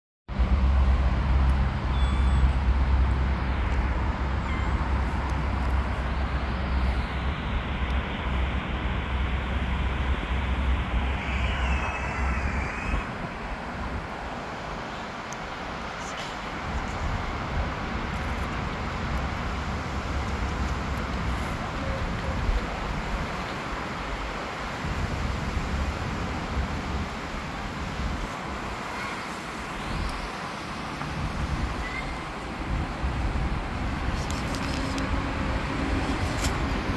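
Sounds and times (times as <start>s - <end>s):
traffic noise: 0.3s - 36.9s
short warbling high chirp: 1.9s - 2.5s.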